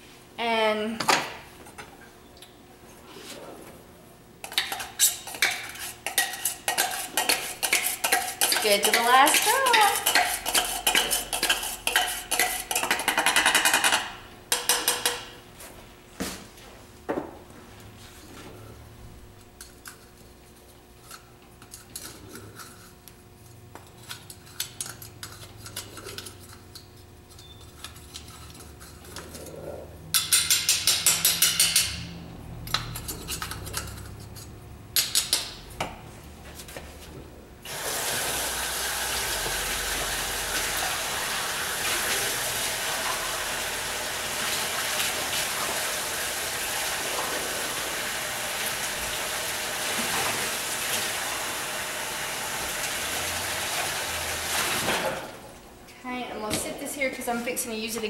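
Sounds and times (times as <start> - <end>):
water running from a tap: 37.7 - 54.8.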